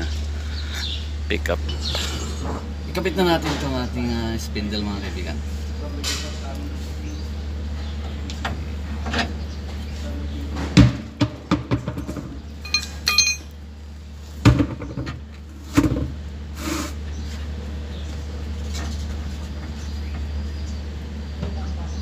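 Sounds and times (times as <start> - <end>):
metal tools knocking and clinking: 12.6 - 13.5
ringing metallic clink: 12.6 - 13.5
low hum: 12.6 - 13.6.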